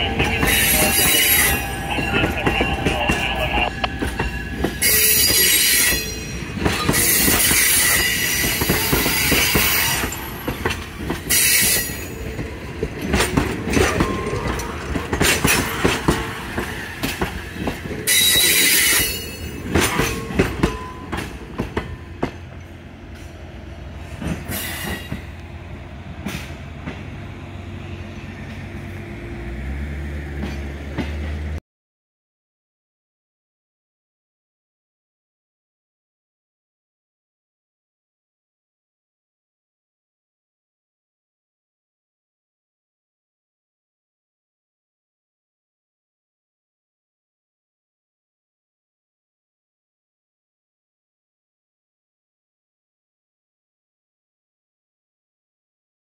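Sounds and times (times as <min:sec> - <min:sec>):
train wheels clicking over rail joints: 0:00.1 - 0:23.4, 0:26.1 - 0:27.2, 0:30.3 - 0:31.6
high-pitched wheel squeal: 0:04.2 - 0:10.2, 0:18.1 - 0:19.6.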